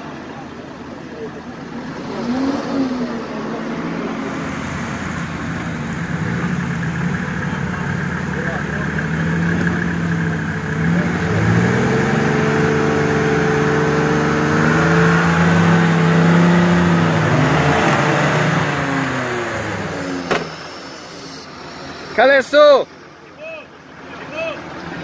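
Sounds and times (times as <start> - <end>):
engine revving hard: 1.8 - 22.6
sharp knock: 20.2 - 20.6.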